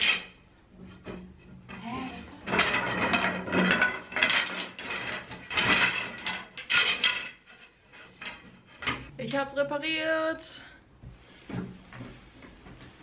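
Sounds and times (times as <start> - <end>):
wooden bed slats clattering: 0.0 - 9.1.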